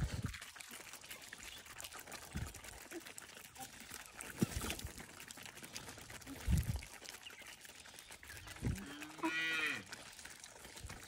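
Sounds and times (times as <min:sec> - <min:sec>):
chickens pecking on concrete: 0:00.0 - 0:11.0.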